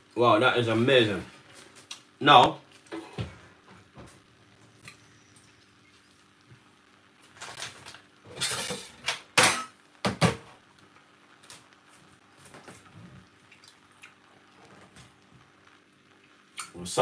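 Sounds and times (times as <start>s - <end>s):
kitchenware scraping: 7.4s - 9.7s
kitchenware clattering: 8.3s - 10.5s.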